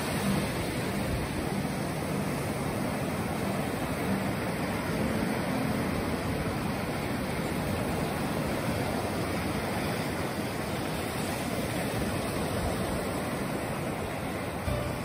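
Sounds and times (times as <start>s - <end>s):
waves washing over sand: 0.0s - 15.0s.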